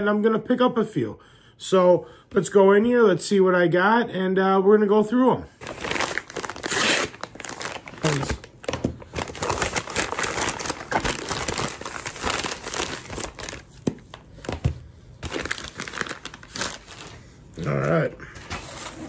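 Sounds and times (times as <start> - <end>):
paper packaging crinkling: 5.6 - 17.8.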